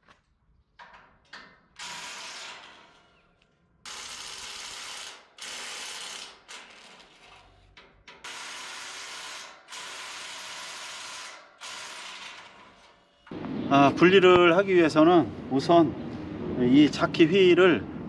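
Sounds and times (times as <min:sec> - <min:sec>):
power tool bursts: 0:01.8 - 0:07.4, 0:08.2 - 0:13.2.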